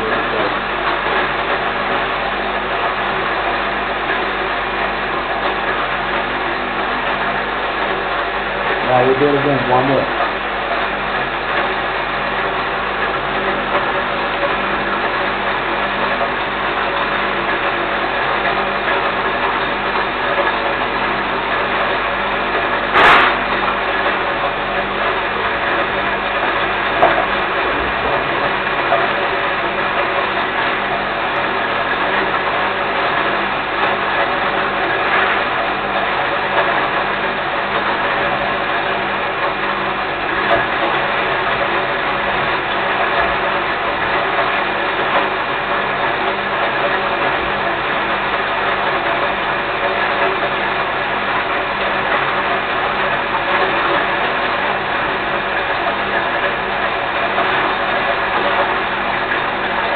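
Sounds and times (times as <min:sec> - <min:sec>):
electric grain mill grinding: 0:00.0 - 0:59.9
sharp knock: 0:23.0 - 0:23.4.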